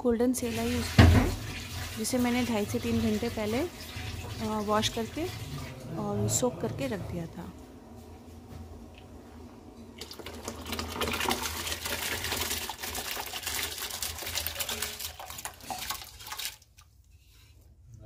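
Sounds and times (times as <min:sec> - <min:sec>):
rice pouring into boiling water: 0:00.5 - 0:05.7, 0:09.9 - 0:16.8.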